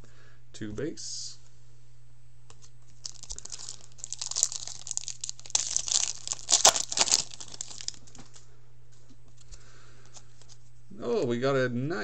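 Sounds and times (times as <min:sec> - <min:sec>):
foil wrapper tearing and crackling: 0:03.0 - 0:08.2.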